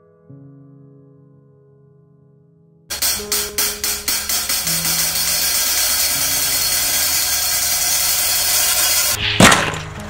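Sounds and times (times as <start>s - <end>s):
hi-hat cymbal strokes: 2.9s - 9.2s.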